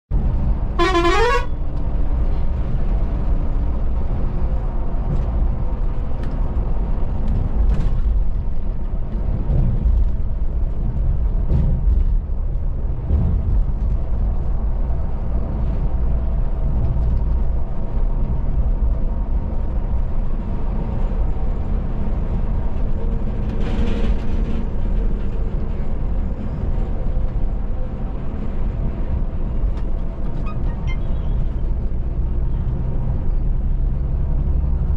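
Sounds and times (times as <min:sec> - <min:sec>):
road noise: 0:00.1 - 0:34.9
coach engine drone: 0:00.2 - 0:08.0
bus horn blast: 0:00.7 - 0:01.6.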